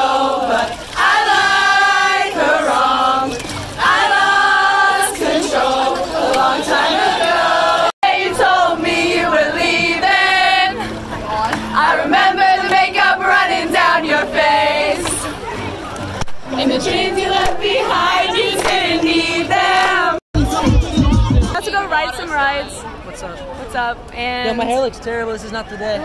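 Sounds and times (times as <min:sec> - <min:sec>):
women singing loudly close by: 0:00.0 - 0:10.9, 0:11.6 - 0:15.3, 0:16.5 - 0:21.0
crowd singing a pop song: 0:00.0 - 0:15.7, 0:16.4 - 0:21.6.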